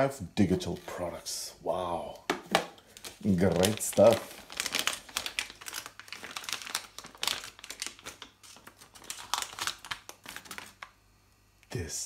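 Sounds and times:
anti-static bag crinkling: 2.8s - 11.0s.

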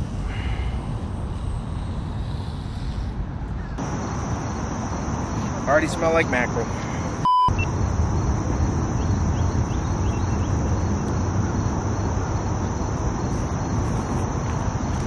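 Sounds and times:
insects droning: 3.8s - 15.0s.

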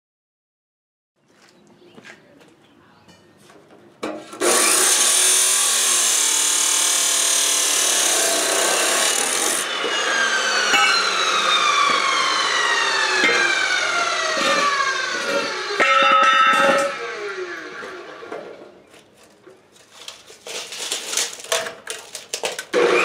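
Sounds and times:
chop saw grinding steel: 4.2s - 18.6s, 22.7s - 23.0s
saw wheel spinning down whine: 4.4s - 18.7s, 22.7s - 23.0s.

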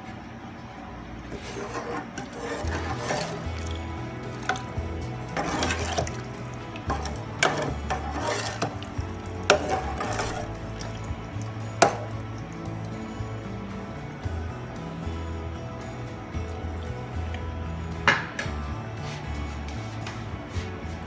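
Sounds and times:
ladle stirring watery gravy: 1.2s - 14.8s, 15.4s - 21.0s
background music with bass: 1.3s - 21.0s
ladle clinking against pot: 1.5s - 12.3s.

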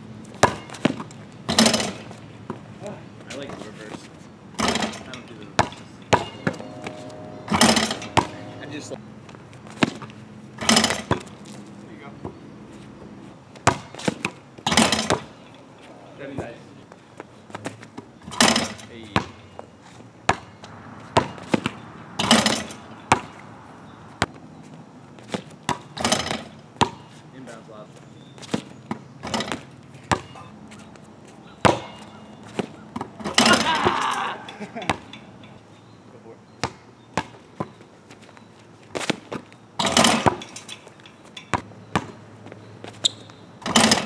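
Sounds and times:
basketball bouncing on asphalt: 0.1s - 2.7s, 5.6s - 6.7s, 7.7s - 8.4s, 9.2s - 11.6s, 12.2s - 12.4s, 13.5s - 15.4s, 16.4s - 27.2s, 28.2s - 33.5s, 34.8s - 35.2s, 36.5s - 40.6s, 41.3s - 44.0s
ball hitting rim and backboard: 0.3s - 2.6s, 4.6s - 8.6s, 9.7s - 11.3s, 13.6s - 15.4s, 18.2s - 19.4s, 20.3s - 23.4s, 25.3s - 27.1s, 28.5s - 30.5s, 31.6s - 34.2s, 34.8s - 35.2s, 39.8s - 40.7s, 41.5s - 42.2s, 43.2s - 44.0s
basketball crashing on hoop: 13.6s - 15.3s, 39.8s - 40.6s.

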